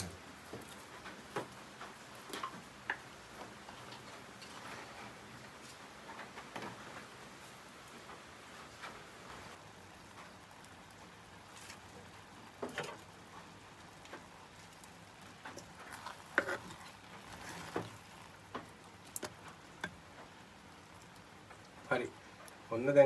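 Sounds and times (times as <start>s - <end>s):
curry simmering with pops: 0.0s - 22.8s
wooden spoon stirring in pot: 9.9s - 22.6s.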